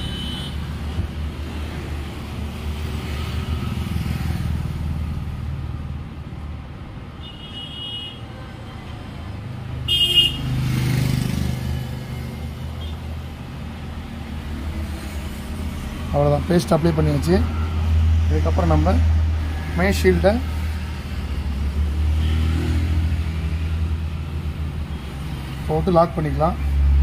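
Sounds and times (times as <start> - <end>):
road traffic: 0.0 - 27.0
vehicle horn toots: 7.2 - 8.2, 9.9 - 10.5
vehicle passing close: 10.4 - 12.4.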